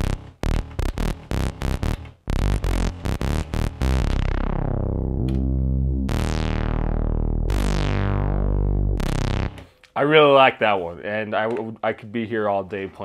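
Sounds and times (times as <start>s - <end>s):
analog synthesizer notes: 0.0s - 9.6s.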